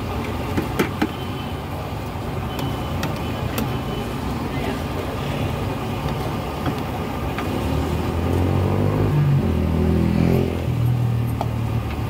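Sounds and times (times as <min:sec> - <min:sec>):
street traffic: 0:00.0 - 0:12.0
vehicle engine revving: 0:07.4 - 0:11.8.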